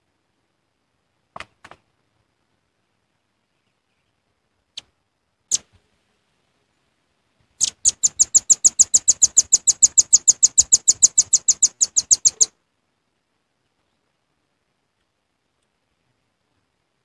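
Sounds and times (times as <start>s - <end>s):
bird trill of high chips: 7.6s - 12.5s.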